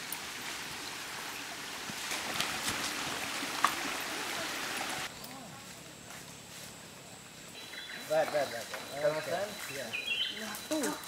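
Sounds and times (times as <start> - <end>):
stream trickling over rocks: 0.0 - 5.1.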